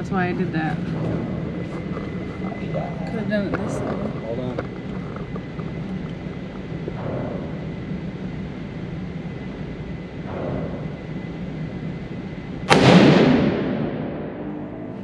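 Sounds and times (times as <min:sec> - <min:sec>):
steady background noise: 0:00.0 - 0:15.0
rifle shot echoing indoors: 0:12.6 - 0:14.9.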